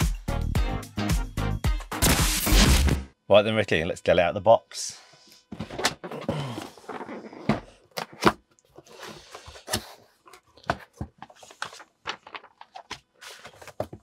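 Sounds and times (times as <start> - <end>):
cardboard and paper rustling: 5.6 - 14.0.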